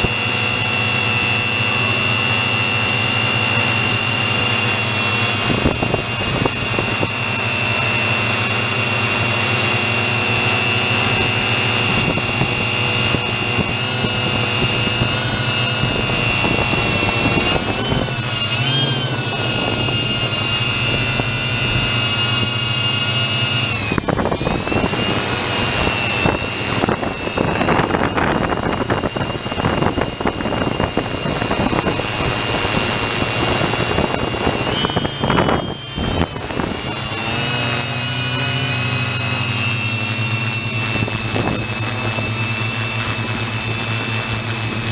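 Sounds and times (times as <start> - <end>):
drone motors whining: 0.0 - 44.9
wind buffeting microphone: 5.3 - 7.6, 10.2 - 23.0, 23.6 - 37.5, 38.3 - 44.9.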